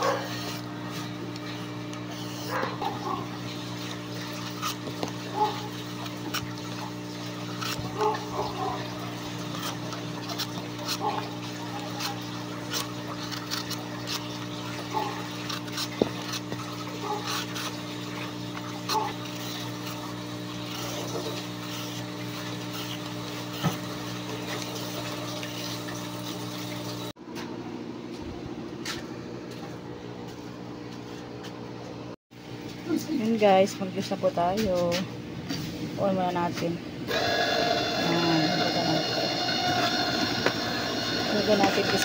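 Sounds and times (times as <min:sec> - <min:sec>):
vegetable peeler scraping: 0:00.0 - 0:26.7, 0:37.1 - 0:42.0.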